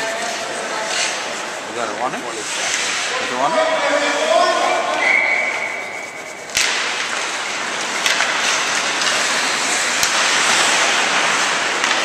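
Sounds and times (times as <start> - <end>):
rink noise rushing: 0.0 - 12.0
thin steady tone: 4.3 - 6.6.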